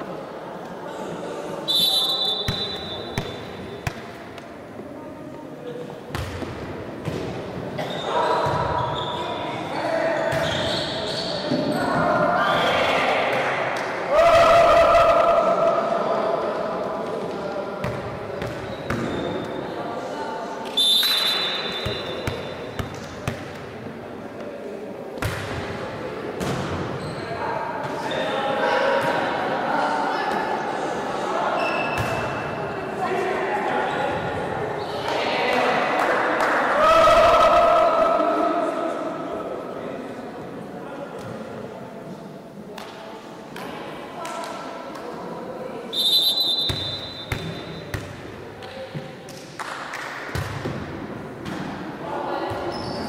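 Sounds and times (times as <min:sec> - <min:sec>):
referee's whistle blast: 0:01.7 - 0:03.3, 0:45.9 - 0:47.8
volleyball slaps with echo: 0:02.4 - 0:04.5, 0:06.1 - 0:07.4, 0:21.0 - 0:23.7, 0:25.2 - 0:25.8, 0:26.4 - 0:26.9, 0:46.6 - 0:51.8.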